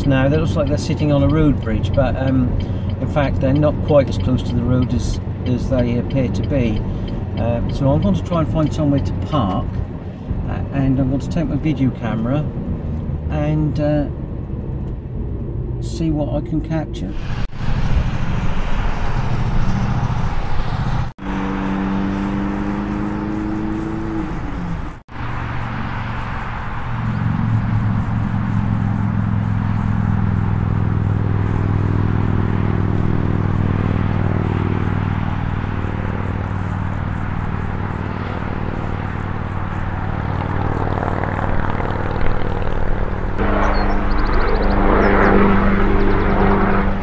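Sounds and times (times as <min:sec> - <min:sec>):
car road noise: 0:00.0 - 0:47.0
low engine drone: 0:16.8 - 0:47.0.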